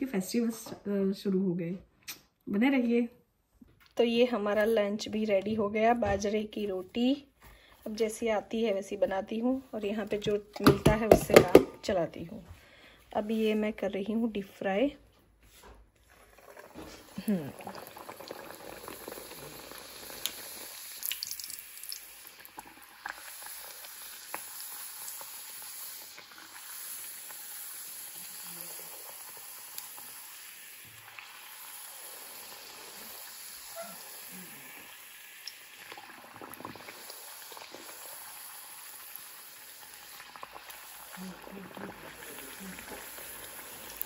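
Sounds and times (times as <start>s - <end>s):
hot oil sizzling and bubbling: 16.0s - 44.0s.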